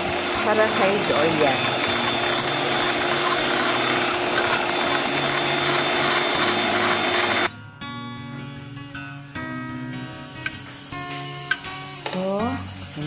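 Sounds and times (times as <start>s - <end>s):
electric hand mixer whipping cream: 0.0s - 7.5s.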